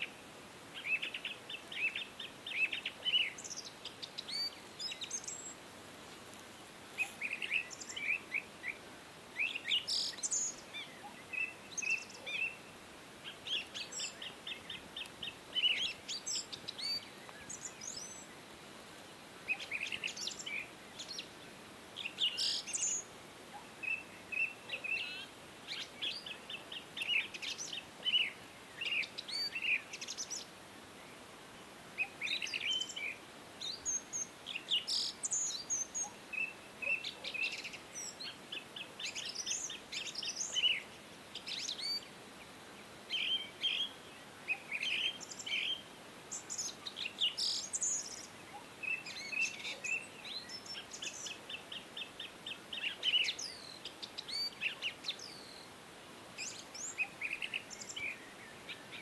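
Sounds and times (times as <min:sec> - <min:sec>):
faint steady hiss: 0:00.0 - 0:59.0
birds chirping and singing: 0:13.3 - 0:18.3.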